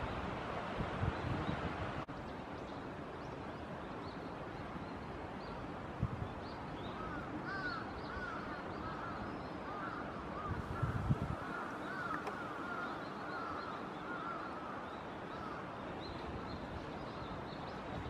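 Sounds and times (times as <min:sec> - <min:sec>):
stream water running: 0:00.0 - 0:18.0
bird calling: 0:07.0 - 0:14.8.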